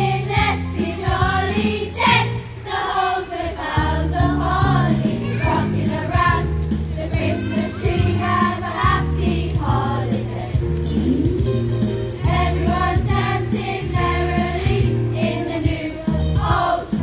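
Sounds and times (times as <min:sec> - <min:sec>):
choir of young voices singing: 0:00.0 - 0:10.6, 0:12.2 - 0:17.0
low bass notes: 0:04.2 - 0:15.2.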